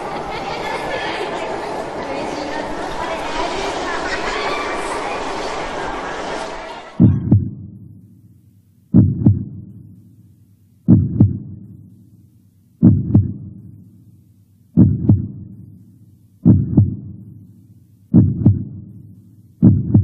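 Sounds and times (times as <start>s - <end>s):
heartbeat thumps: 7.0s - 20.0s.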